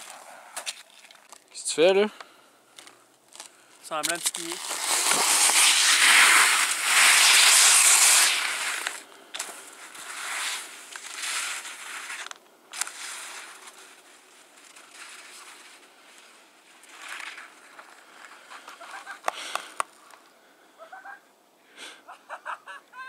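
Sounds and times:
skis sliding over snow: 3.4 - 19.5.

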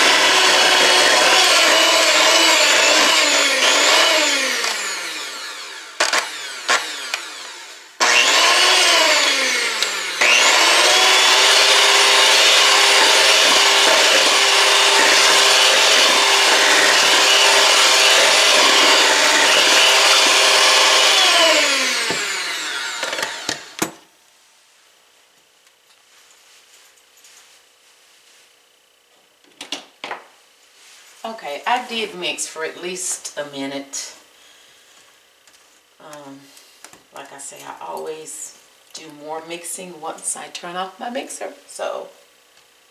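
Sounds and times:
electric mixer whining: 0.0 - 24.0.

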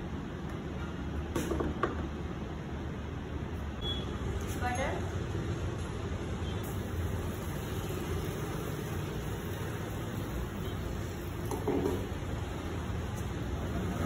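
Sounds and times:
gas burner roaring: 5.2 - 14.0.

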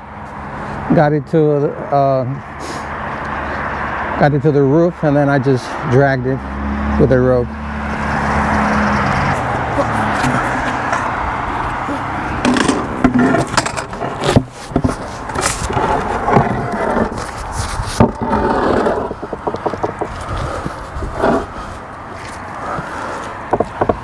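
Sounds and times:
stone slab scraping: 11.8 - 21.8.

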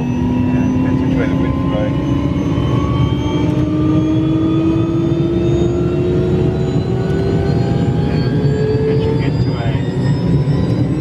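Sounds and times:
helicopter turbine whine: 0.0 - 11.0
rotor rumble: 0.0 - 11.0.

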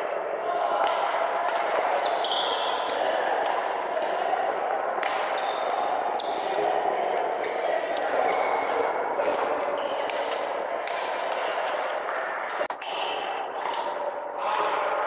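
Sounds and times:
echoing sports hall hum: 0.0 - 15.0.

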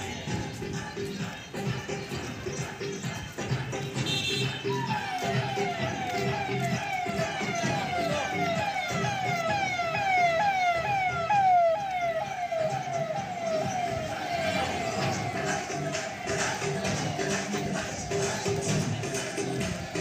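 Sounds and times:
emergency vehicle siren wailing: 4.6 - 18.1.

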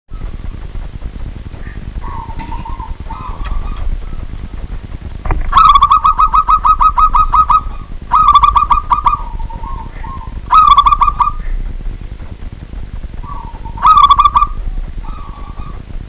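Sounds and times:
dove cooing: 1.6 - 4.7, 5.4 - 11.7, 13.2 - 16.0.

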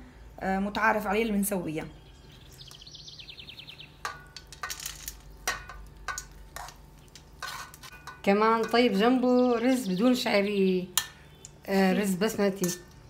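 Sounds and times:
metal spoon scraping steel pans: 4.0 - 9.8, 10.9 - 13.0.

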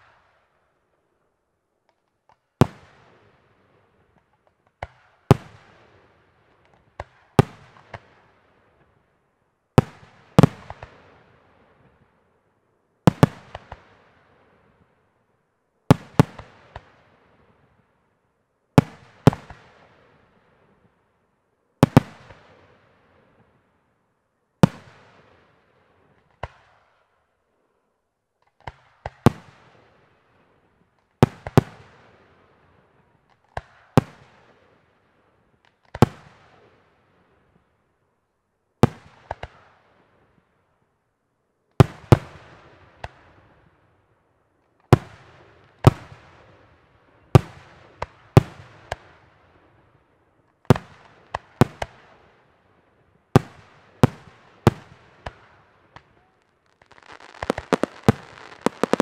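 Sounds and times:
smaller firework report: 2.5 - 15.2, 15.8 - 24.0, 24.6 - 38.1, 38.8 - 40.8, 41.8 - 59.0
firework shells bursting: 56.8 - 59.0.

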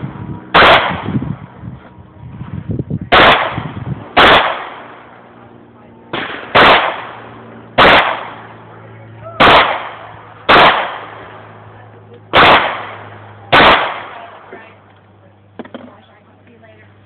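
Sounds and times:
pistol shots with echo: 0.5 - 1.2, 3.1 - 5.1, 6.1 - 8.6, 9.4 - 11.6, 12.3 - 14.5.

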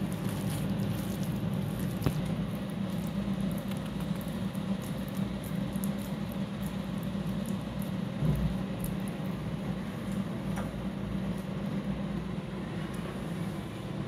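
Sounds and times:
wet paste squishing: 0.0 - 10.2.

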